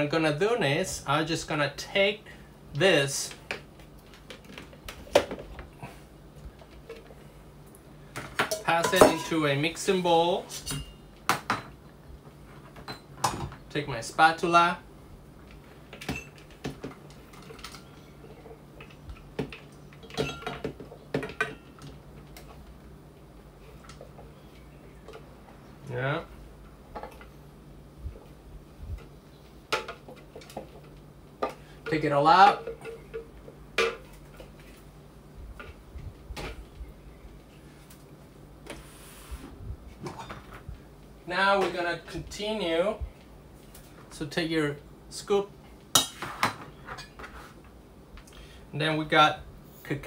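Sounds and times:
low steady hum: 0.0 - 50.0
utensils clinking on metal bowls: 8.4 - 9.5, 19.9 - 21.9.

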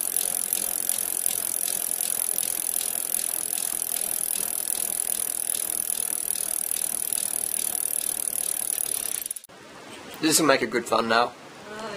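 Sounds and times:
bicycle hub ticking: 0.0 - 9.5.

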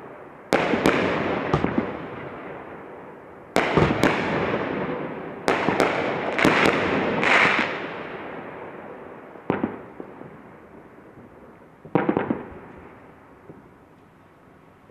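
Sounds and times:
fireworks bangs: 0.0 - 2.7, 3.5 - 8.6, 9.4 - 10.4, 11.2 - 13.7
fireworks rushing burst: 3.6 - 8.0.

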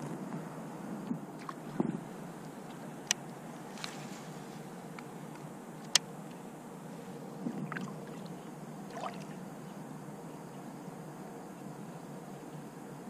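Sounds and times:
water lapping against boat: 7.4 - 9.4.

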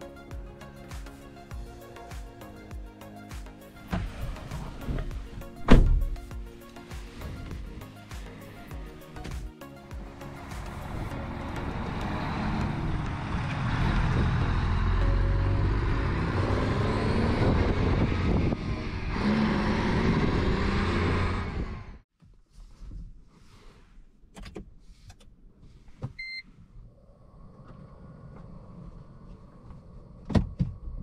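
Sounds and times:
diesel truck pulling away: 10.0 - 22.0.

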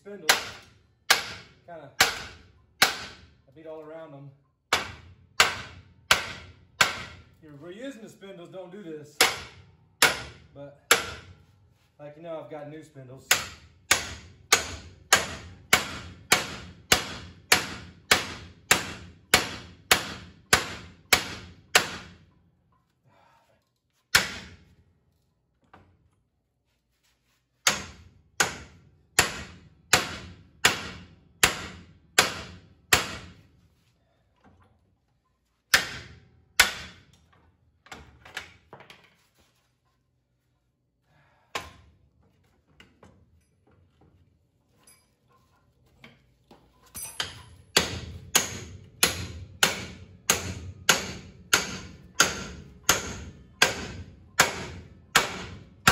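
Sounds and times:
hammer striking steel punch: 0.3 - 3.3, 4.7 - 7.3, 9.2 - 11.4, 13.3 - 22.3, 24.1 - 24.6, 27.6 - 33.4, 35.7 - 37.1, 41.5 - 41.9, 47.0 - 55.9.

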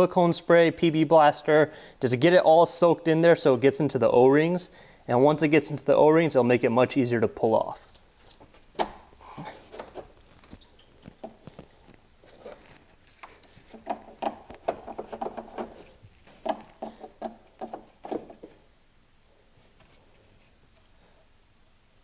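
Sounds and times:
hose creaking and rubbing: 9.4 - 18.6.

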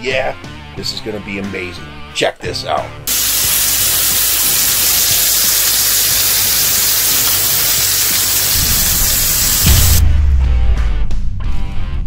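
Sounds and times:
food sizzling on a grill: 3.1 - 10.0
low rumble ending in deep boom: 9.7 - 12.0.

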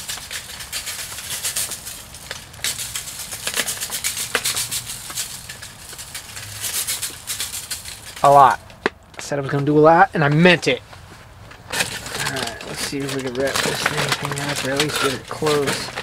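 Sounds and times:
seasoning shaker rattling: 0.0 - 8.5, 12.0 - 16.0.

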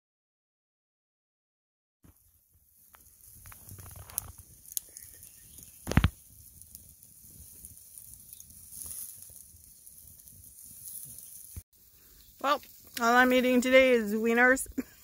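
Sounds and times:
campfire hissing and crackling: 2.1 - 15.0
sharp pop from fire: 2.9 - 6.7.

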